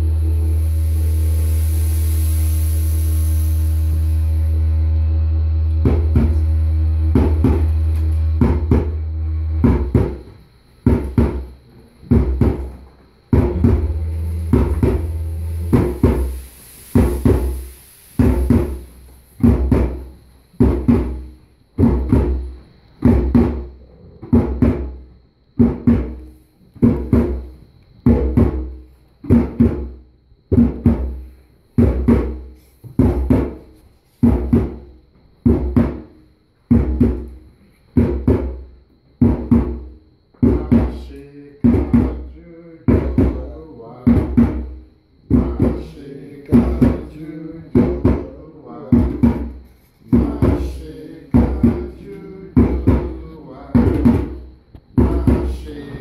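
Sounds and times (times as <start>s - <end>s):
deep held tone: 0.0s - 10.3s, 13.4s - 17.8s
slow ringing drum beat: 0.0s - 43.5s, 44.1s - 56.0s.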